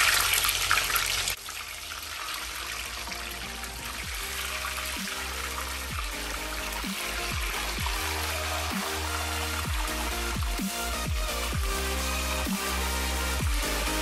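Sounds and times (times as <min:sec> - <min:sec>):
oil sizzling in a pot: 0:00.0 - 0:14.0
background music with bass notes: 0:03.0 - 0:14.0.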